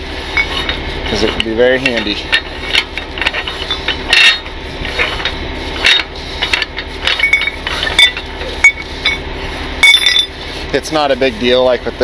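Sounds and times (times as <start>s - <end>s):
steady low hum: 0.0s - 12.0s
winch ratchet clicks and knocks: 0.4s - 9.2s.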